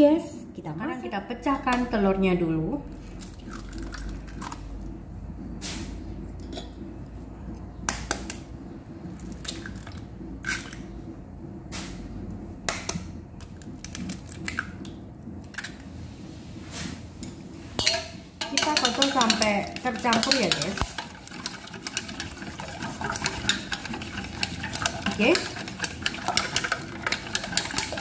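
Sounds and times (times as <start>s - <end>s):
low steady hum: 0.0s - 28.0s
eggshell tapping on metal bowl: 17.8s - 28.0s.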